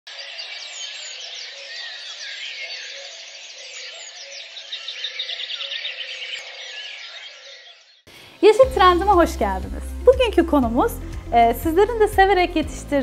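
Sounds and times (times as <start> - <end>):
rapid bird trill: 0.1 - 8.1
birds chirping and twittering: 0.1 - 9.2.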